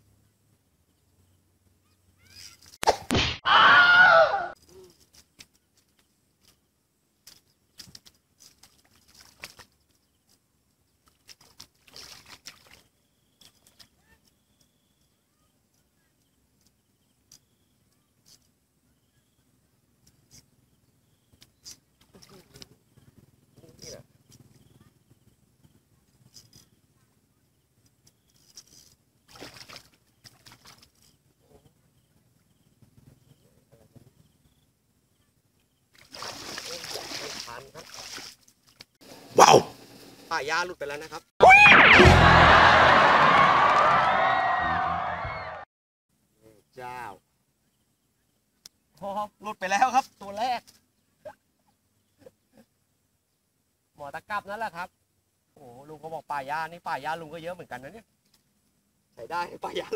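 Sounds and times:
open-air ambience: 0.0s - 59.9s
footsteps splashing in shallow water: 7.3s - 10.0s, 11.0s - 13.9s, 29.3s - 31.0s, 36.0s - 39.0s.

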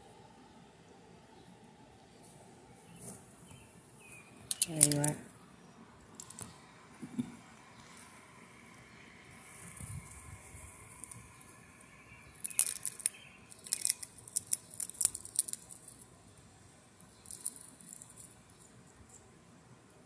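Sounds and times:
squirrel cracking a nut: 4.4s - 5.3s, 6.1s - 6.6s, 10.8s - 11.6s, 12.2s - 16.2s, 17.0s - 19.2s.

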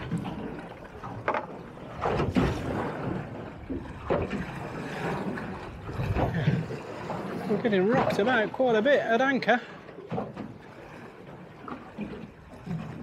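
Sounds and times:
sea sloshing against boat hull: 0.0s - 13.0s
wind buffeting microphone: 1.8s - 8.2s.

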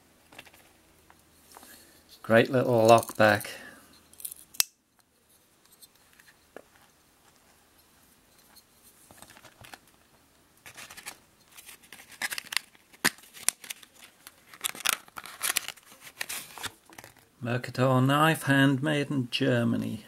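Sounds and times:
paper leaflet rustling: 9.0s - 9.9s, 10.6s - 17.3s.

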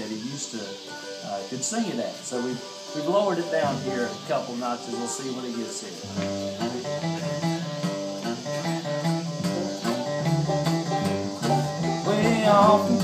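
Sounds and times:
acoustic guitar picking: 2.9s - 13.0s
upright bass notes: 3.6s - 4.3s, 6.1s - 13.0s.

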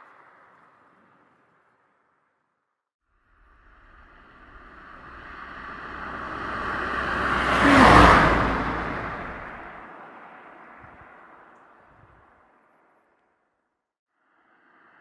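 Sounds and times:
low rumble: 3.3s - 10.0s
rushing whoosh: 3.4s - 11.2s.

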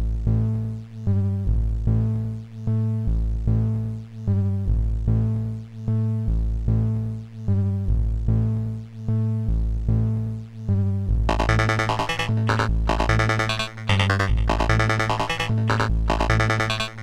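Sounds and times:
synth notes over heavy bass: 11.3s - 17.0s.

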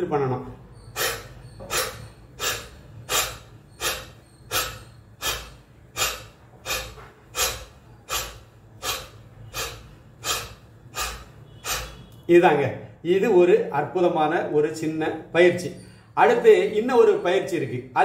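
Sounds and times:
man breathing forcefully: 0.7s - 12.2s.

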